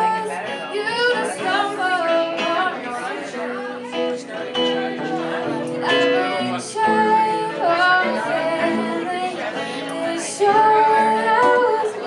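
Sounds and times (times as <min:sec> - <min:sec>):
girl singing: 0:00.0 - 0:04.2, 0:05.8 - 0:12.0
acoustic guitar: 0:00.0 - 0:12.0.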